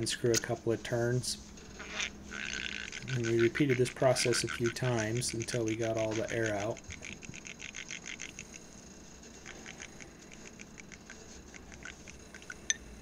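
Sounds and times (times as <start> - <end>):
fluid sputtering from bleeder screw: 1.8 - 8.5.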